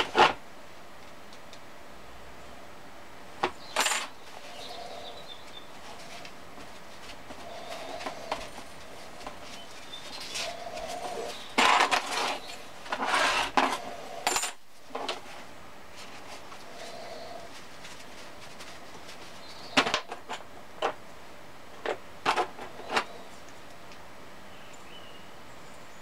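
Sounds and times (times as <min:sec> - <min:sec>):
metal parts clinking: 0:03.7 - 0:04.1, 0:14.2 - 0:14.6
paper towel rustling and rubbing: 0:15.2 - 0:19.7.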